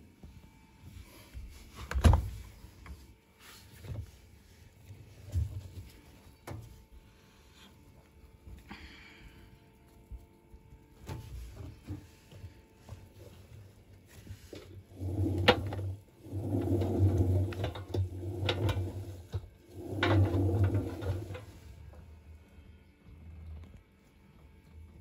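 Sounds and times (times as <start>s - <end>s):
washing machine drum tumbling: 14.6s - 21.6s.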